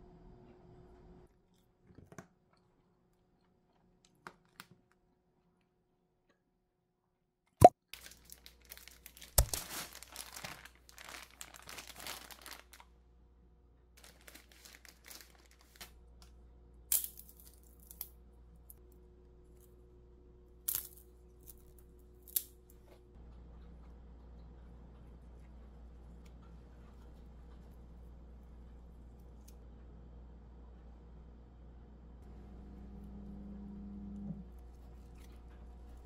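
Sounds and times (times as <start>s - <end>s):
paper sleeve rustling and tearing: 8.0s - 12.8s, 14.0s - 15.9s.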